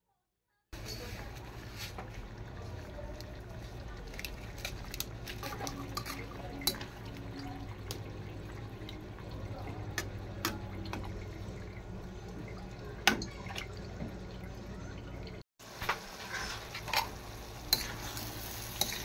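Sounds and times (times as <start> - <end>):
spoon stirring wet sloshing: 0.8 - 15.4
utensil scraping metal pan: 16.1 - 19.0.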